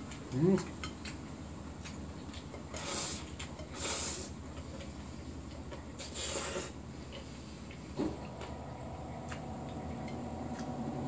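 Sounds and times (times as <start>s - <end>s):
person slurping noodles: 2.7s - 4.4s, 6.0s - 6.8s
washing machine running: 5.9s - 11.0s.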